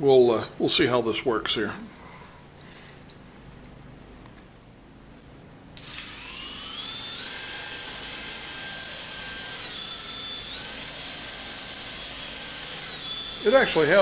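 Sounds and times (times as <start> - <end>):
toy helicopter motor whine: 5.8 - 14.0.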